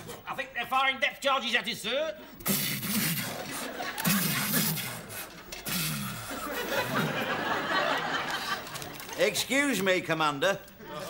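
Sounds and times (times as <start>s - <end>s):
studio audience laughing: 3.1s - 4.9s, 6.2s - 9.1s.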